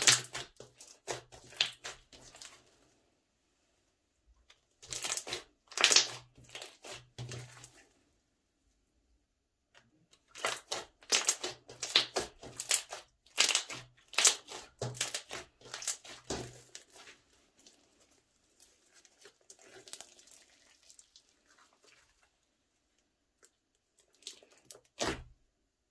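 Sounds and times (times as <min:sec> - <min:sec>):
slime squishing and crackling: 0:00.0 - 0:02.9, 0:04.6 - 0:07.8, 0:10.2 - 0:22.4, 0:23.4 - 0:25.4.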